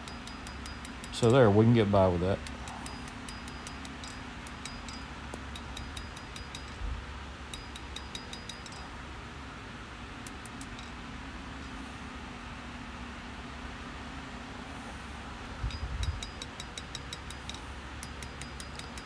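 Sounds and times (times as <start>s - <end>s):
hammer tapping on anvil: 0.0s - 1.5s, 2.4s - 6.8s, 7.5s - 8.9s, 15.7s - 19.0s.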